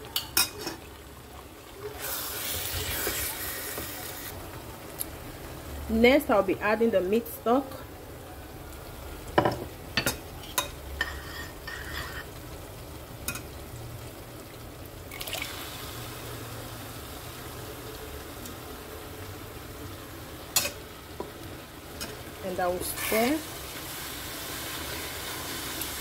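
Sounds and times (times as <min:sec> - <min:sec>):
stew frying: 0:00.0 - 0:26.0
stock pouring into a pot: 0:15.1 - 0:15.9.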